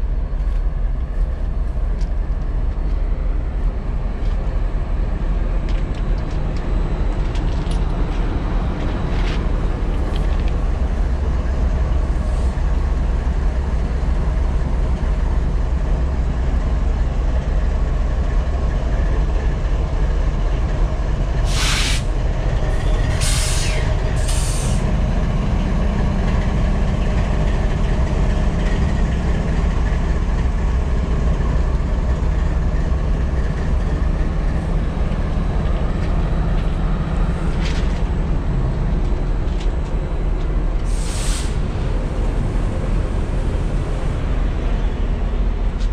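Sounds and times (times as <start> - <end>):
diesel engine low drone: 0.0 - 45.9
short hisses: 21.5 - 22.1.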